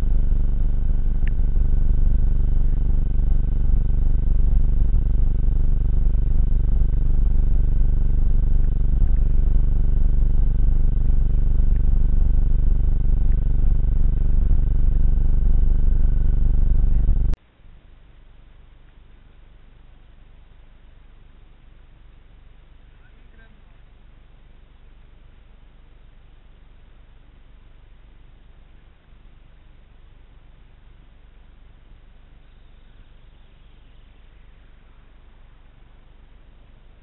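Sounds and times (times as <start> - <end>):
loud low rumble: 0.0 - 17.4
faint high whine: 0.0 - 37.0.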